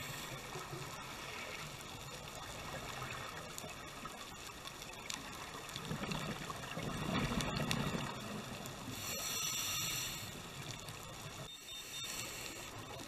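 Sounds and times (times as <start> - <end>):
inhaled breath hiss through regulator: 0.0 - 1.6, 8.8 - 13.0
faint steady crackling: 0.0 - 13.0
exhaled bubbles burbling underwater: 5.0 - 8.9.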